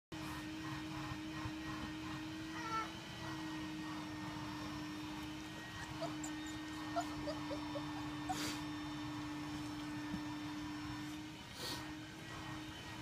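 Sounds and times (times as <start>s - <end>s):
puppies whining and squeaking: 5.2s - 9.9s.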